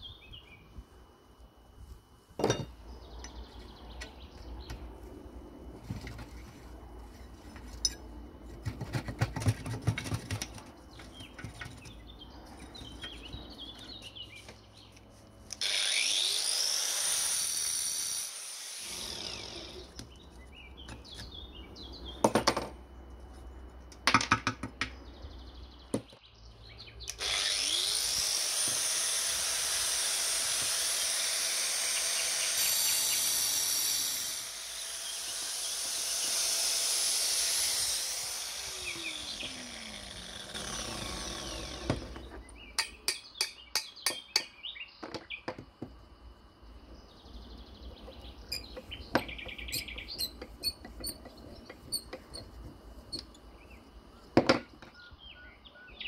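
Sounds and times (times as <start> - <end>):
metal-on-metal knocks: 2.4 - 2.8
loud steady hiss: 27.1 - 42.2.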